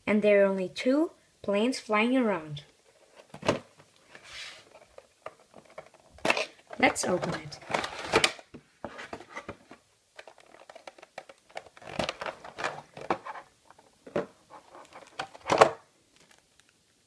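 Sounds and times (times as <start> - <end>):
plastic packaging crinkling: 4.7 - 13.9, 14.5 - 16.7.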